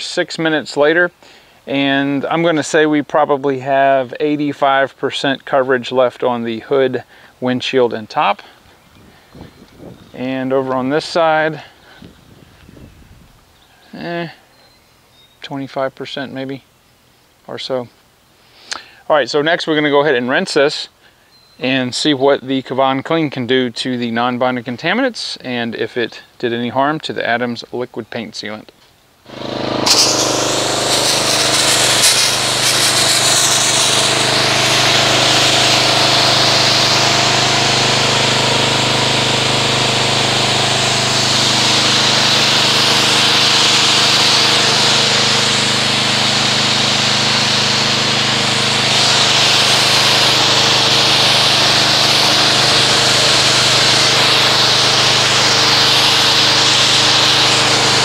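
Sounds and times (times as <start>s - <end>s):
pressure washer motor humming: 29.3s - 58.0s
water jet hissing: 29.3s - 58.0s.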